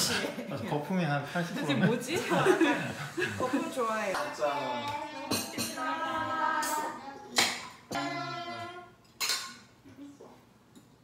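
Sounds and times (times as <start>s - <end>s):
people calling out a toast: 7.9s - 8.9s.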